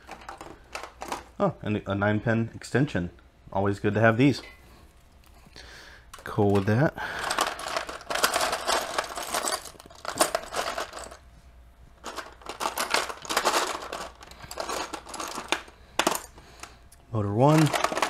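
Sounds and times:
plastic bricks clattering: 6.1s - 11.2s, 12.0s - 16.8s, 17.4s - 18.0s.

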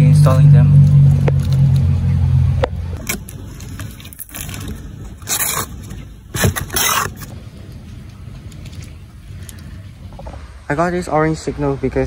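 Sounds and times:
plastic shrink wrap tearing: 3.0s - 7.3s.

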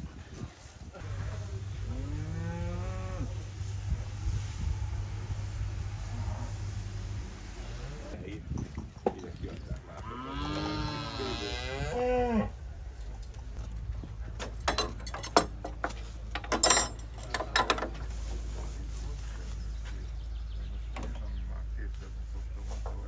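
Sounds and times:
cow mooing: 1.2s - 3.5s, 5.8s - 8.2s, 10.0s - 12.5s.

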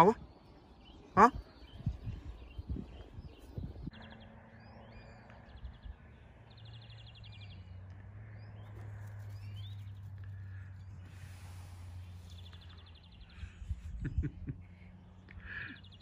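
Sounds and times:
small birds chirping and trilling: 0.0s - 16.0s.

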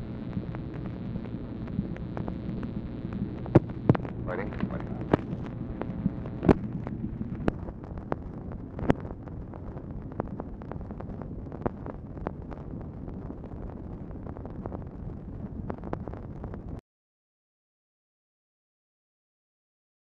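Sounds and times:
clicks and pops: 0.0s - 16.8s
recording hiss and hum: 0.0s - 16.8s.

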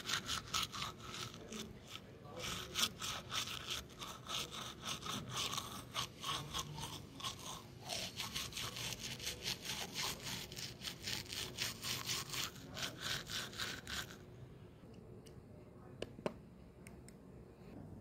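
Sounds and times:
toothbrush scrubbing teeth: 0.0s - 14.3s.

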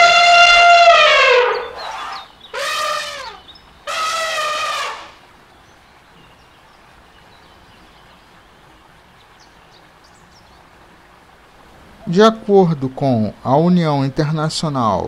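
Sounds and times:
elephant trumpeting: 0.0s - 5.2s.

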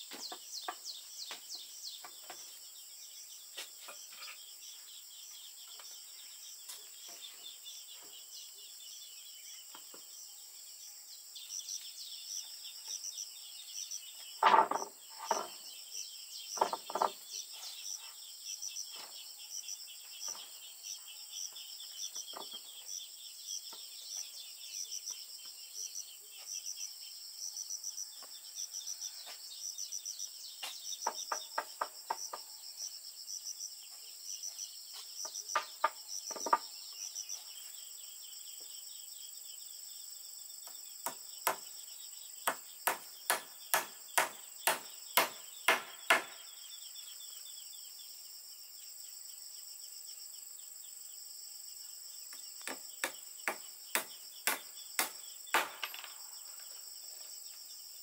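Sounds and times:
insects chirping: 0.0s - 58.0s
wooden boards knocking: 14.4s - 15.6s, 16.6s - 17.2s, 35.5s - 36.7s, 52.6s - 56.2s.

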